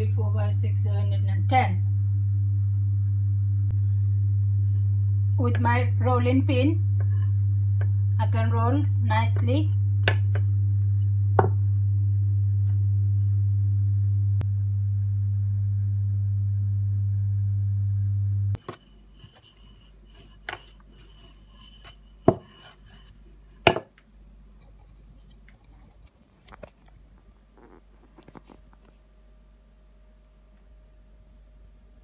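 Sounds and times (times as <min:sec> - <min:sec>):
steady low hum: 0:00.0 - 0:32.0
rolling pin knocking on stone: 0:11.4 - 0:11.6, 0:22.2 - 0:22.6, 0:23.6 - 0:24.0.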